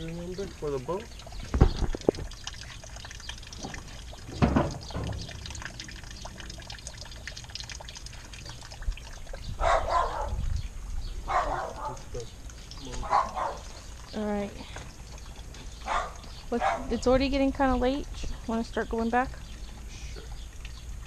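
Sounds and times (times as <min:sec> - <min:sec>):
knocks on aluminium boat: 0:03.7 - 0:05.4.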